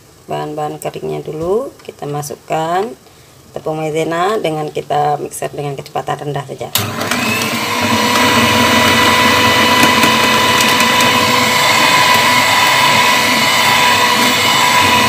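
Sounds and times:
electric hand mixer whining: 0:06.8 - 0:15.0.

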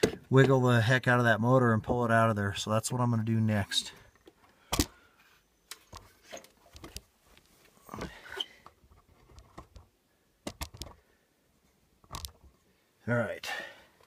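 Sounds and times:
soft rustling: 0:05.2 - 0:09.6
light handling clicks and knocks: 0:05.7 - 0:11.0, 0:12.0 - 0:12.6.

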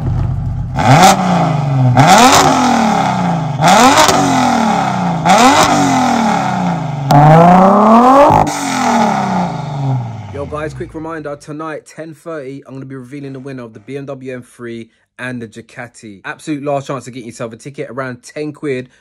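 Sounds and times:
car engine revving: 0:00.0 - 0:11.2.

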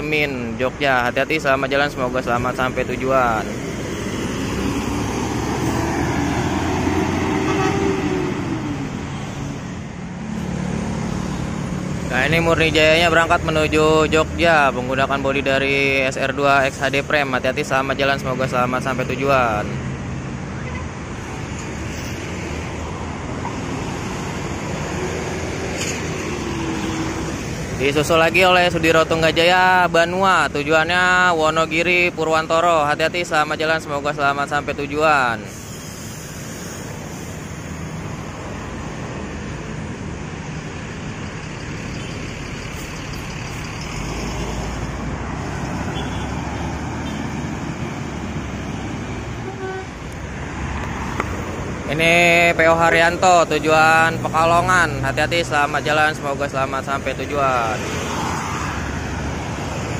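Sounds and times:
bus diesel engine drone: 0:00.0 - 0:59.9
road traffic noise: 0:00.0 - 0:59.9
horn toot: 0:07.3 - 0:08.2, 0:45.9 - 0:46.4, 0:49.4 - 0:50.0
coach diesel engine driving off: 0:35.9 - 0:58.4.

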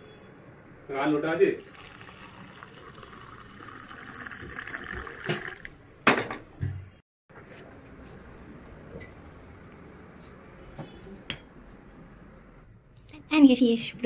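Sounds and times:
milk pouring into mug: 0:01.6 - 0:05.7.

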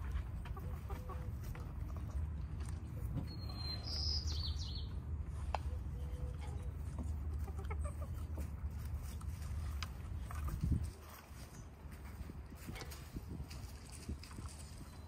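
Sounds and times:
hens clucking: 0:00.0 - 0:11.6
hens scratching in straw: 0:05.3 - 0:15.0.

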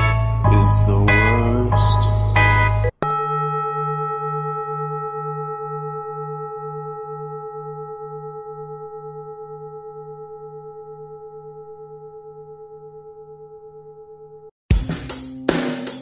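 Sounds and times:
bell ringing: 0:03.0 - 0:13.5.

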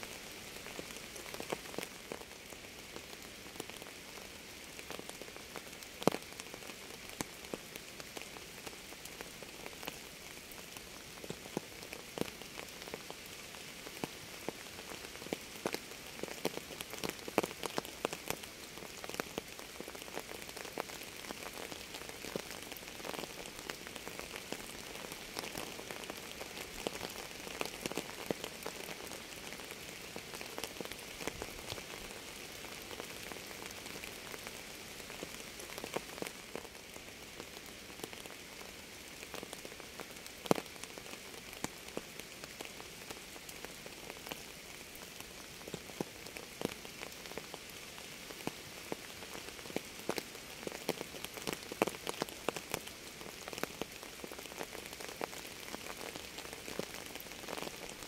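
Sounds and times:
raindrops ticking close by: 0:00.0 - 0:58.0.

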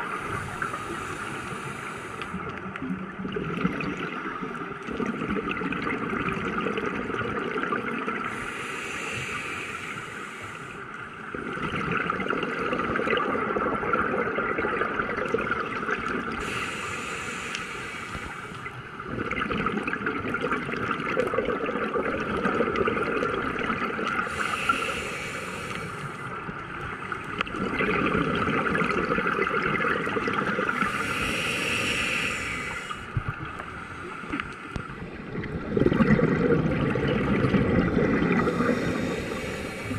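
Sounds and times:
regulator air hiss: 0:00.0 - 0:02.4, 0:08.3 - 0:10.9, 0:16.4 - 0:18.7, 0:24.2 - 0:26.3, 0:30.9 - 0:34.8, 0:38.4 - 0:39.9
bubbling exhale underwater: 0:03.2 - 0:08.4, 0:11.3 - 0:16.6, 0:19.0 - 0:25.0, 0:27.4 - 0:33.6, 0:35.2 - 0:39.9.

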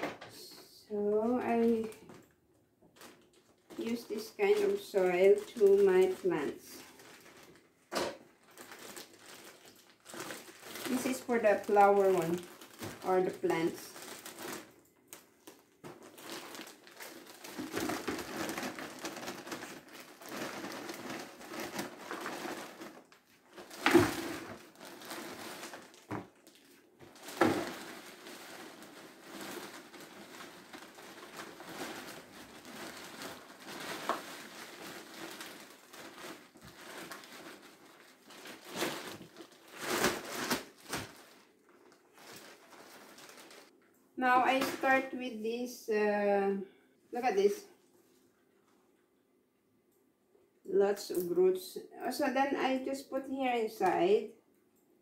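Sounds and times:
plastic bag crinkling: 0:01.5 - 0:45.2.

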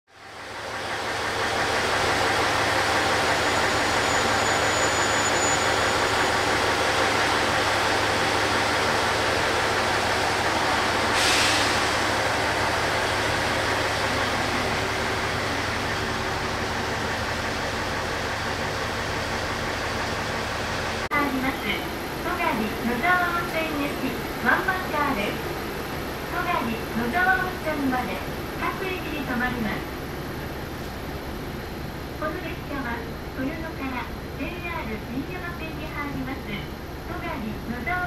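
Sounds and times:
diesel railcar engine idling: 0:00.1 - 0:38.0
short air hiss: 0:11.1 - 0:12.0.

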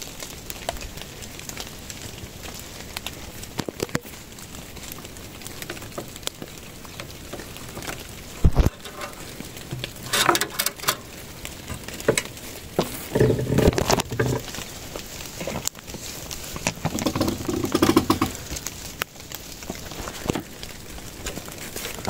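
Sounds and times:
light rain pattering: 0:00.0 - 0:22.0
rustling gate and footsteps: 0:04.7 - 0:22.0.

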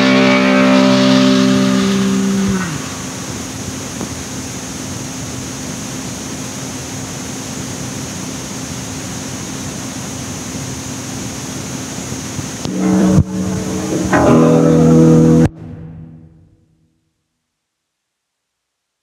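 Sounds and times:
electric guitar playing: 0:00.0 - 0:03.4, 0:12.7 - 0:16.6
tape hiss: 0:00.0 - 0:16.5
constant low hum: 0:00.0 - 0:16.7.

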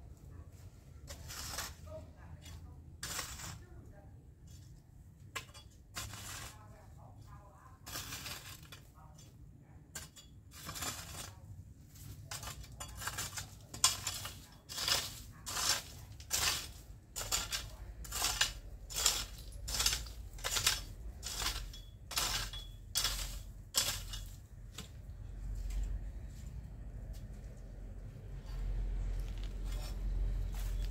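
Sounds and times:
garden tool scraping soil: 0:00.9 - 0:03.8, 0:04.5 - 0:09.2, 0:09.9 - 0:26.5, 0:28.3 - 0:30.9.

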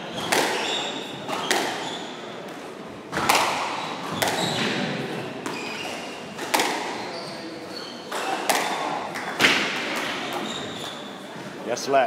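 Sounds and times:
shoes squeaking on wooden floor: 0:00.0 - 0:02.3, 0:03.8 - 0:06.4, 0:07.0 - 0:08.4, 0:10.2 - 0:11.2
squash ball hits: 0:00.0 - 0:07.4, 0:08.1 - 0:10.9.

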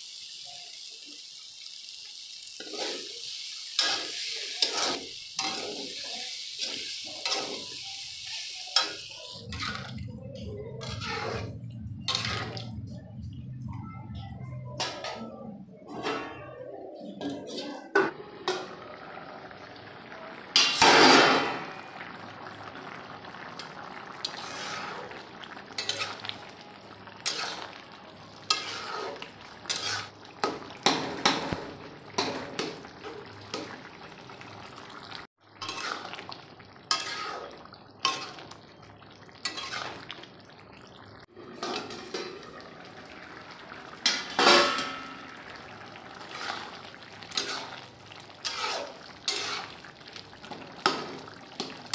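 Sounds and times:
metal ladle scraping a metal pot: 0:10.8 - 0:12.7, 0:28.5 - 0:30.1, 0:35.6 - 0:36.1, 0:36.9 - 0:37.4, 0:39.4 - 0:40.0, 0:46.2 - 0:47.8, 0:48.4 - 0:49.8.

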